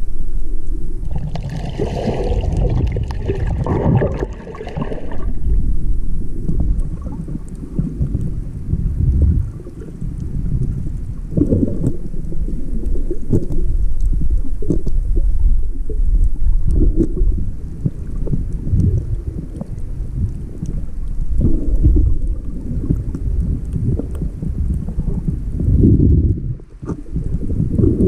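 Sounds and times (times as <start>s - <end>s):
underwater rumble of water: 0.0s - 28.0s
faint clicks: 9.0s - 25.6s.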